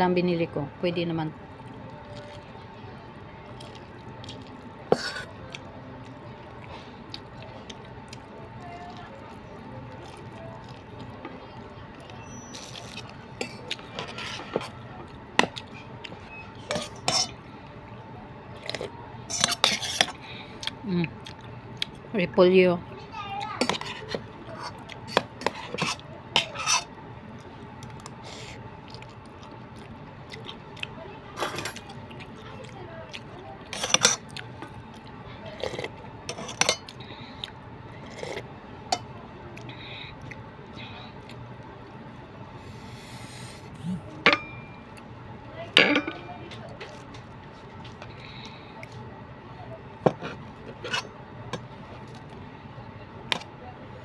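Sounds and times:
wet chewing: 1.6s - 2.7s, 3.4s - 17.5s, 18.6s - 22.0s, 23.4s - 42.0s
metal spoon clinking on steel bowl: 44.2s - 44.8s.

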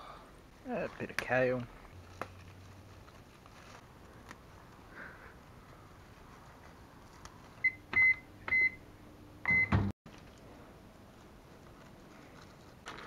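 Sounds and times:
microwave beeps: 7.6s - 8.8s, 9.4s - 9.9s
microwave chirp: 7.6s - 9.9s.

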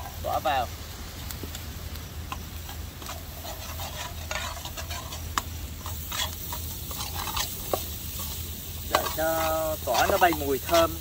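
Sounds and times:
light sizzle: 0.0s - 11.0s
metal ladle scraping in a wok: 2.6s - 11.0s.

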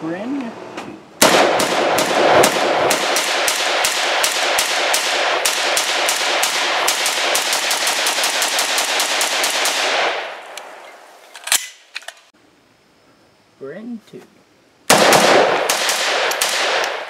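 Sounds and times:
rapid gunshots: 1.2s - 10.4s, 14.9s - 17.0s.

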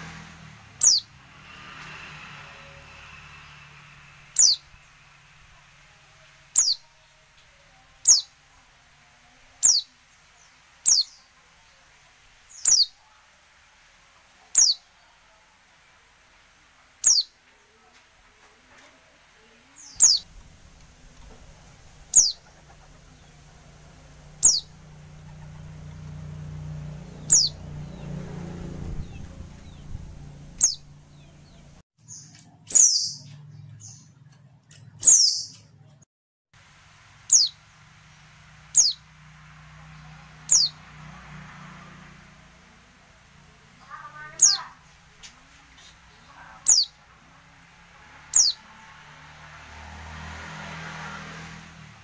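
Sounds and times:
bird calls: 0.8s - 1.1s, 4.4s - 4.9s, 6.6s - 7.0s, 12.5s - 13.0s, 17.0s - 17.4s, 19.8s - 26.2s, 27.2s - 35.7s, 43.9s - 45.0s, 45.7s - 47.0s, 48.3s - 48.6s
bird chirping: 0.8s - 1.1s, 4.3s - 5.1s, 6.5s - 8.4s, 9.5s - 11.4s, 12.5s - 13.0s, 14.5s - 15.0s, 17.0s - 17.4s, 19.8s - 36.0s, 37.2s - 37.6s, 38.6s - 39.1s, 39.9s - 40.9s, 43.9s - 45.1s, 45.8s - 47.0s, 48.3s - 48.7s.

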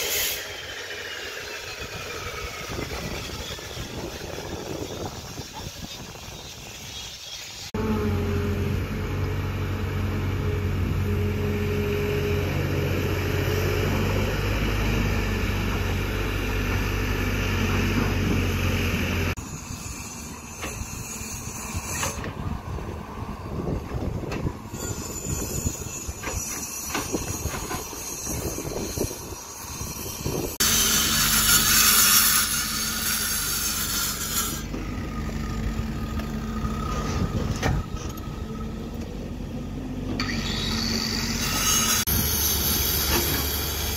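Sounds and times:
loud hiss: 0.0s - 7.8s
excavator diesel engine digging: 7.7s - 19.4s, 33.8s - 43.9s.

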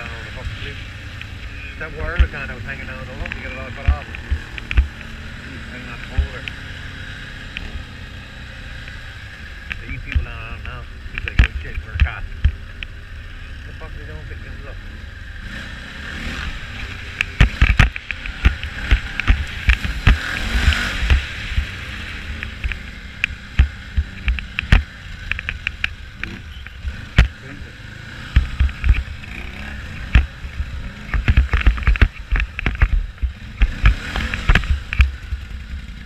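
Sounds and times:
engine rumble: 0.0s - 36.0s
wind: 0.0s - 36.0s
camera mount rattling and knocking: 31.0s - 35.1s.

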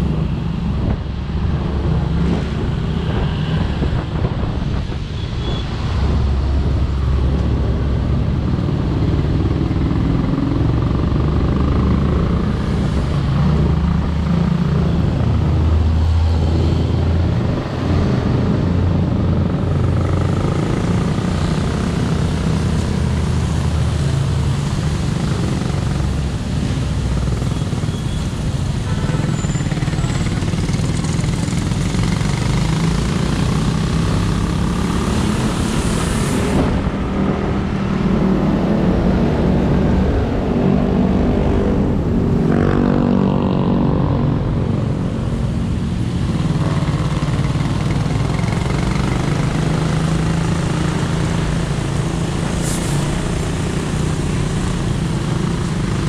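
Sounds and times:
low rumble of traffic: 0.0s - 56.0s
motorcycle engine at low speed: 6.6s - 15.4s, 17.2s - 36.0s, 41.7s - 56.0s.

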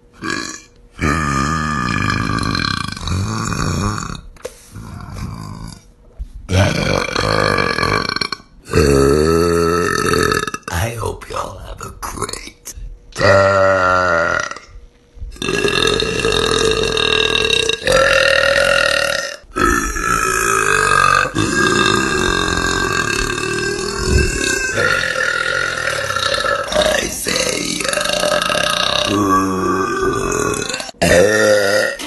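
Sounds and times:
woman burping loudly: 0.2s - 4.2s, 6.5s - 10.7s, 13.2s - 14.7s, 15.4s - 32.0s.

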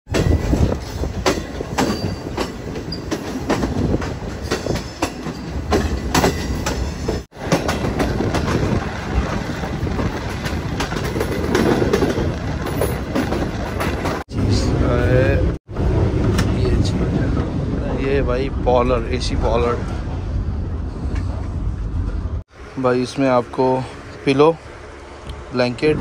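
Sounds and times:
wheels clacking over rail joints: 0.1s - 14.7s, 15.7s - 17.8s
train coaches rumbling: 0.1s - 26.0s.

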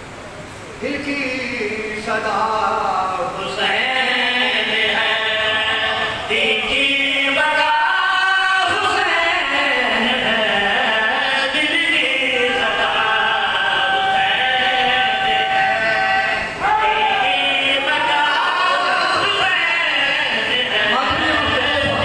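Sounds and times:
man chanting a lament: 0.8s - 22.0s.

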